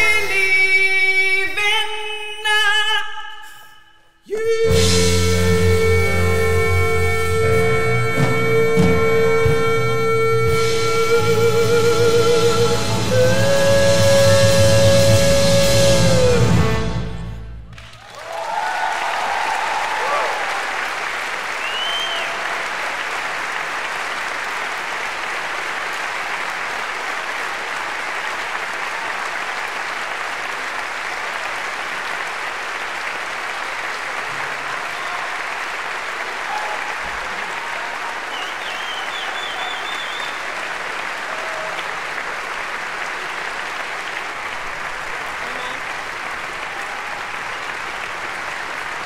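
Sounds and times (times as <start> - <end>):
audience applauding: 17.7 - 49.0.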